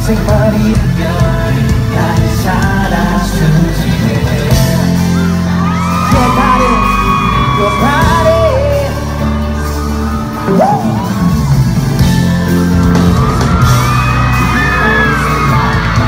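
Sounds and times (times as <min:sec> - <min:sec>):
man singing live: 0:00.0 - 0:09.4, 0:14.0 - 0:16.0
amplified pop track with heavy bass: 0:00.0 - 0:16.0
crowd yelling and cheering: 0:00.0 - 0:16.0.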